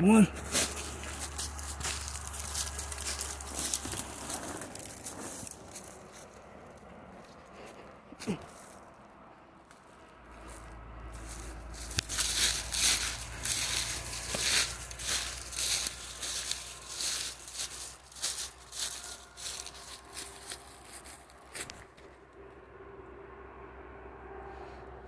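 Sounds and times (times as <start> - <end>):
footsteps crunching dry leaves: 0.0 - 7.5, 9.7 - 21.9
low steady rumble: 0.0 - 25.0.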